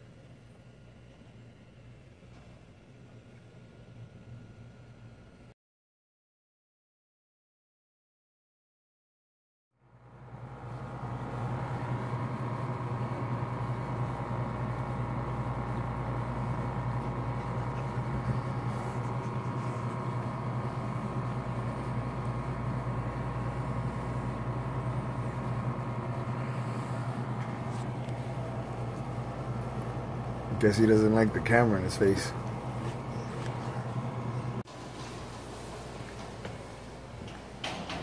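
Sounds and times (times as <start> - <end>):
appliance motor hum: 9.8 - 38.0.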